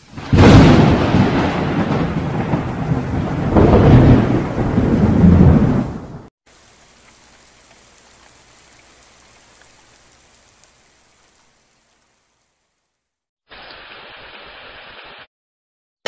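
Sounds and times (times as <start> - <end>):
louder rain: 0.0 - 15.3
rain hissing: 0.0 - 15.3.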